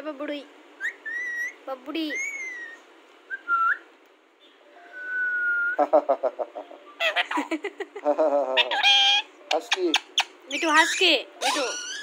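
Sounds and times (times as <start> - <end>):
parakeet whistling: 0.8 - 3.9, 8.6 - 12.0.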